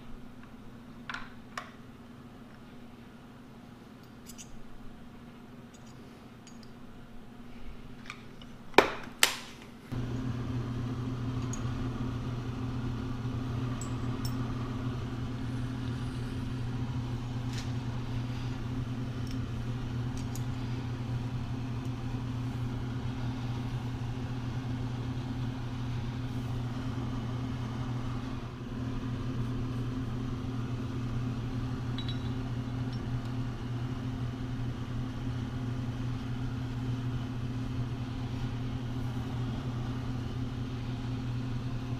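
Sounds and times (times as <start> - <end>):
metal parts clicking: 4.0 - 4.6
low electric motor hum: 9.8 - 41.9.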